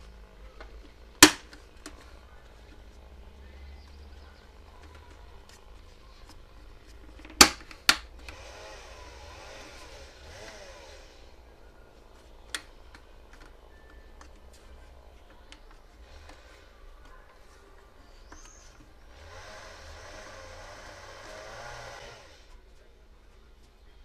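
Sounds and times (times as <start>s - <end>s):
hands rubbing plastic: 0.0s - 8.4s, 11.9s - 19.4s
sharp plastic clicks: 0.6s - 2.1s, 7.1s - 8.4s, 12.4s - 14.6s.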